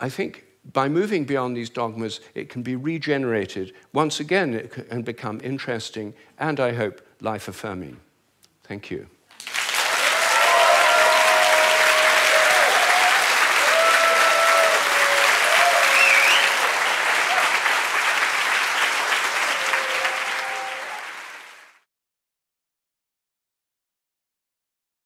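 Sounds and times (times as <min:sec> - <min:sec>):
audience applauding: 0:09.3 - 0:21.8
voices cheering: 0:09.8 - 0:21.6.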